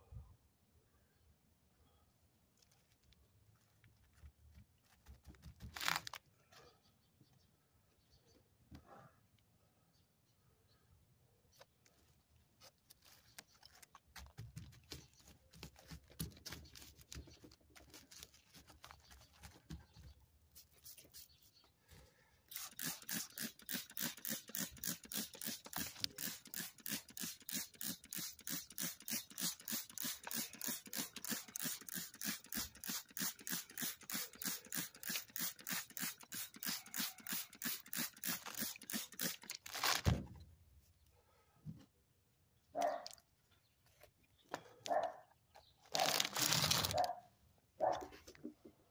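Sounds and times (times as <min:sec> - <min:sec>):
fingers rustling soil: 0:02.4 - 0:06.5, 0:11.6 - 0:40.1, 0:45.8 - 0:47.2
spray bottle hissing sprays: 0:22.5 - 0:39.7.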